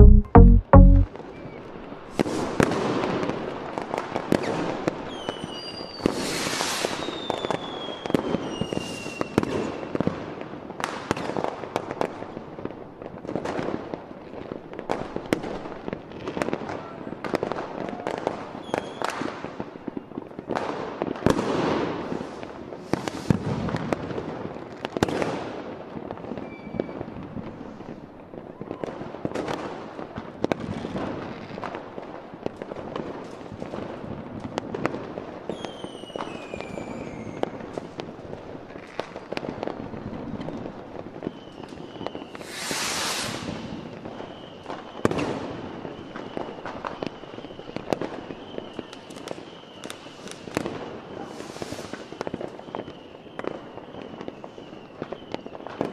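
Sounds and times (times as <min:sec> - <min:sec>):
fireworks bursts and bangs: 0:02.0 - 0:55.9
fireworks crackling: 0:02.2 - 0:55.9
fireworks whistles: 0:04.3 - 0:10.1, 0:18.0 - 0:20.1, 0:21.4 - 0:24.0, 0:26.2 - 0:28.0, 0:35.4 - 0:37.9, 0:40.4 - 0:55.9.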